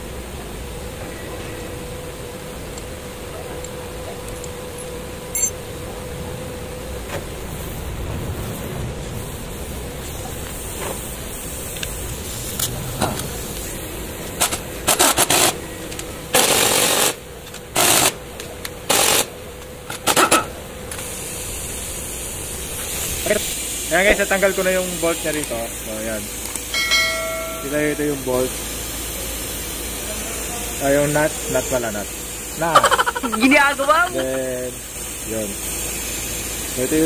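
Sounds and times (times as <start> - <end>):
pneumatic impact wrench bursts: 10.7 - 18.2, 18.8 - 19.3, 19.9 - 25.5, 34.8 - 37.0.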